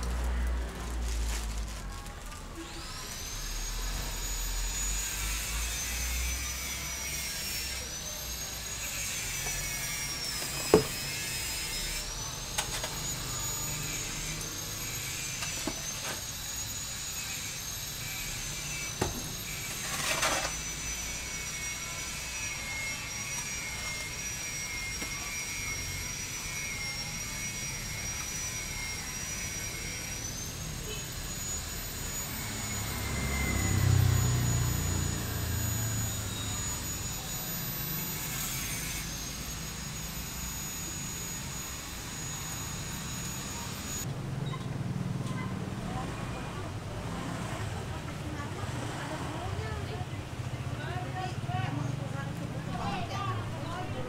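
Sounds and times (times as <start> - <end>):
high-pitched wavering whine: 2.6 - 44.1
hoe knocking and scraping mortar: 10.3 - 11.1, 19.0 - 20.6.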